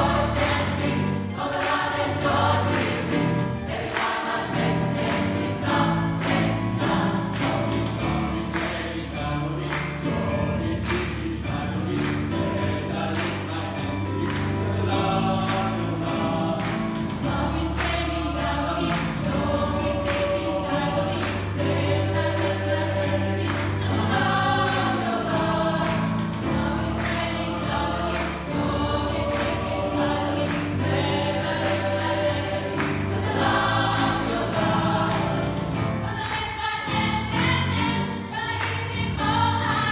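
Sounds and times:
band playing steady beat: 0.0s - 37.7s
gospel choir singing: 0.0s - 39.9s.

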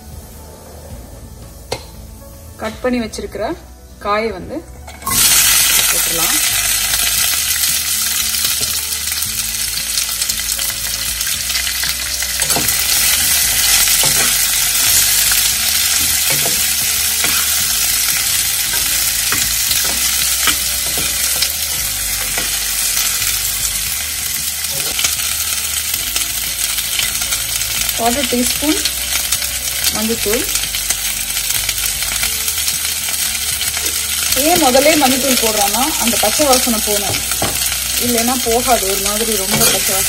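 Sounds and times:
vegetables sizzling in oil: 4.9s - 40.0s
metal spoon scraping pan: 12.4s - 22.6s, 39.5s - 40.0s.

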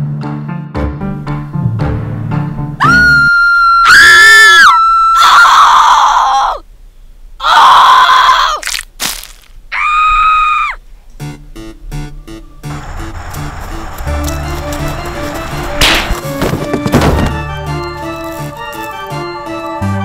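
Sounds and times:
person screaming: 2.8s - 6.6s, 7.4s - 8.7s, 9.7s - 10.8s.

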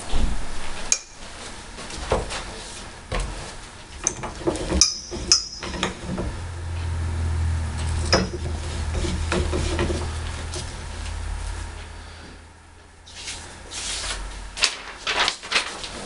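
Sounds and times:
steady low hum: 0.0s - 15.7s
floor jack metal clinks: 4.7s - 6.1s.

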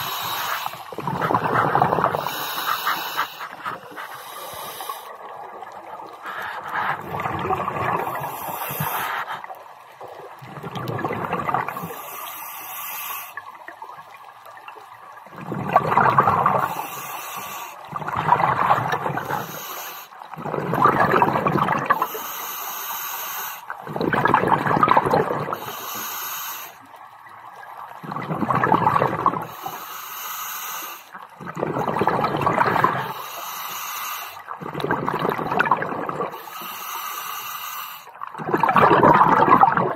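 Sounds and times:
exhaled bubbles rushing underwater: 0.0s - 12.3s, 13.4s - 22.1s, 23.7s - 25.8s, 26.9s - 29.7s, 31.2s - 33.3s, 34.4s - 36.4s, 38.2s - 39.9s.

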